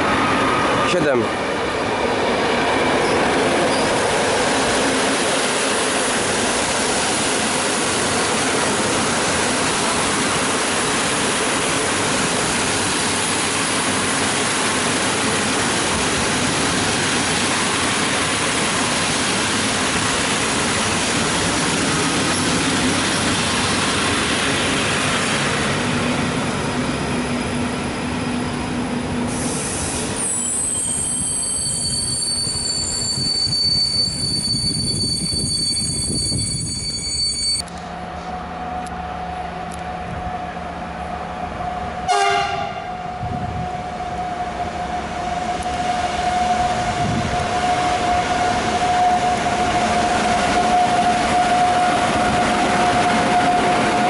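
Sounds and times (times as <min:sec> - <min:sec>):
train rolling noise: 0:00.0 - 0:54.0
high-pitched wheel squeal: 0:27.0 - 0:37.7.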